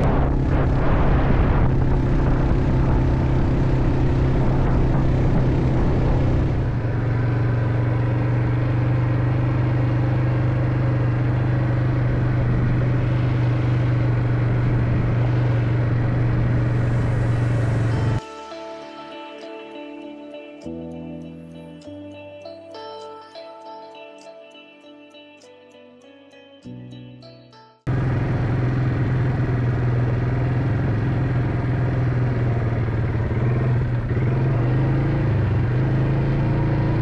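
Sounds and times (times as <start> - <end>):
rushing noise: 0.0 - 9.5, 11.2 - 19.1
vehicle engine humming: 0.0 - 18.2, 27.9 - 37.0.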